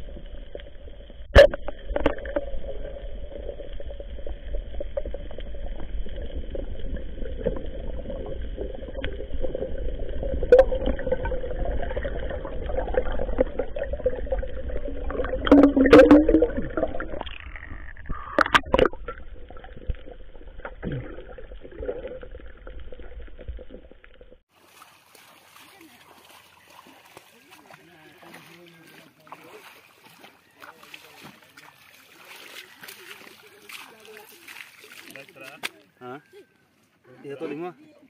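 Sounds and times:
muffled underwater rumble: 0:00.0 - 0:24.4.

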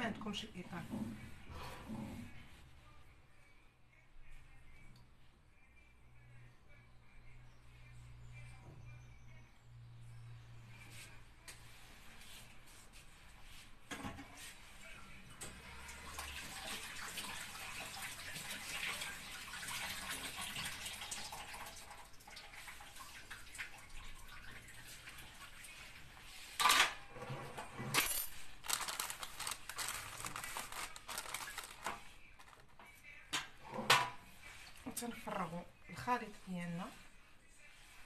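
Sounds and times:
water running: 0:15.8 - 0:26.3, 0:28.1 - 0:32.6.

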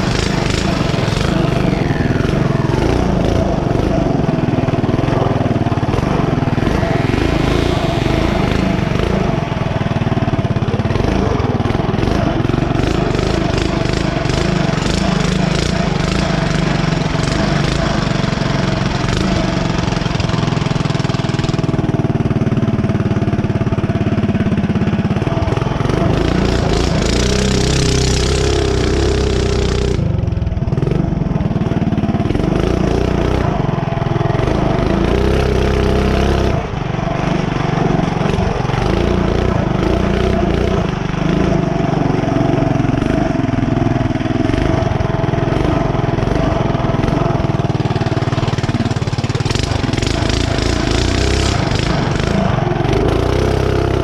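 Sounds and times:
hissing noise: 0:00.0 - 0:10.2
small engine revving: 0:00.0 - 0:54.0.

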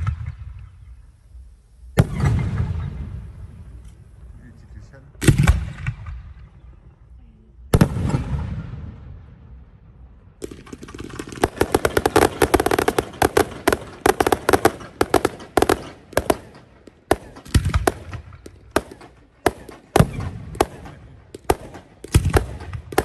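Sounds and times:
rapid crackling firework bangs: 0:02.0 - 0:03.1, 0:07.7 - 0:08.6, 0:10.4 - 0:23.0.

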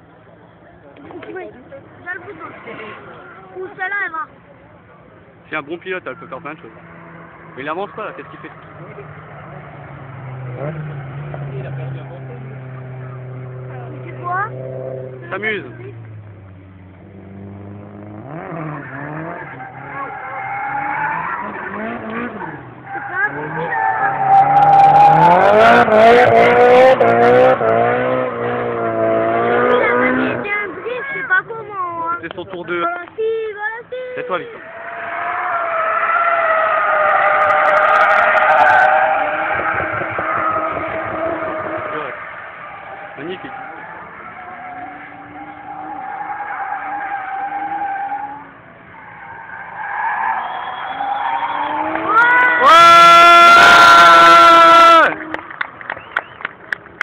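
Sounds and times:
car engine revving hard: 0:06.5 - 0:31.6, 0:36.3 - 0:48.4, 0:50.4 - 0:55.2
tyres screeching: 0:18.3 - 0:26.8, 0:34.5 - 0:55.1.

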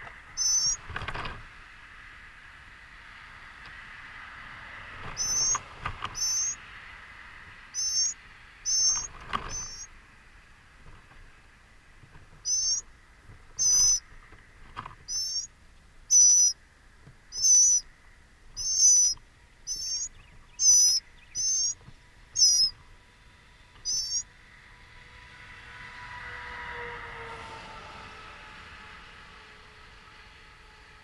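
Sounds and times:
small songbird calling: 0:00.3 - 0:00.9, 0:05.1 - 0:06.6, 0:07.7 - 0:10.0, 0:12.4 - 0:14.4, 0:15.0 - 0:22.9, 0:23.7 - 0:24.3
faint rising hum: 0:01.5 - 0:31.0.

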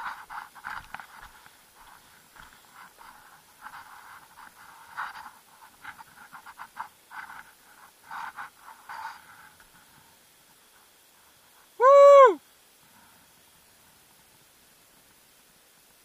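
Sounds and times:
footsteps scuffing over rock: 0:00.0 - 0:09.7.

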